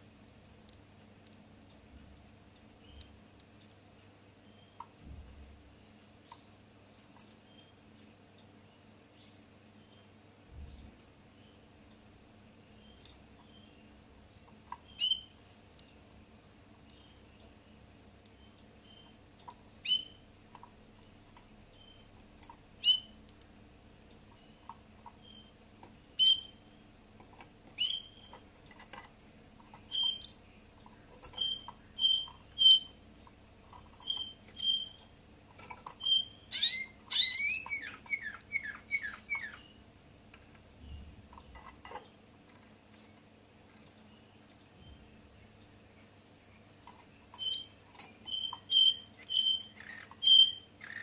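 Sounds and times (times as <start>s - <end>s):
finch chirping: 12.8s - 15.4s, 16.8s - 20.7s, 21.3s - 23.2s, 24.3s - 39.8s, 46.0s - 51.0s.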